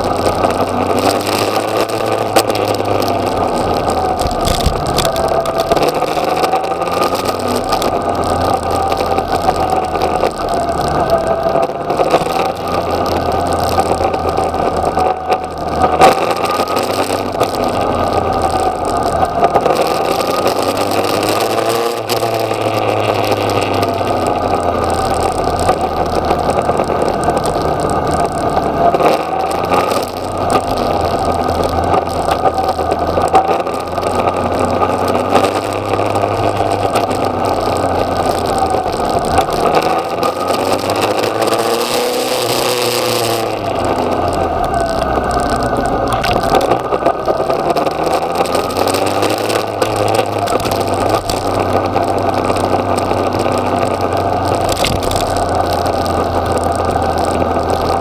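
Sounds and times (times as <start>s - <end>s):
motorcycle engine at speed: 0.0s - 58.0s
wind on microphone: 2.2s - 11.4s, 42.0s - 58.0s.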